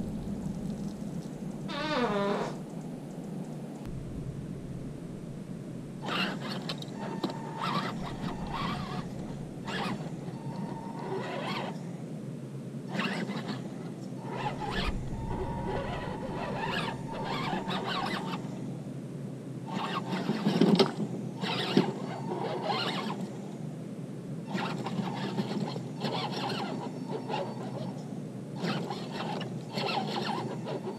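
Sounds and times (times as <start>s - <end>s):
low background rumble: 0.0s - 11.0s, 13.7s - 19.6s
small electric motor whining: 6.0s - 11.8s, 14.2s - 18.5s.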